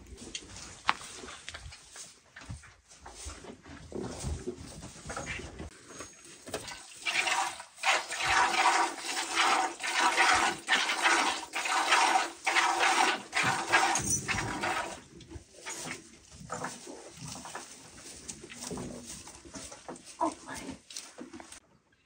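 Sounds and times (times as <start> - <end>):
milk squirting into bucket: 6.5 - 15.1.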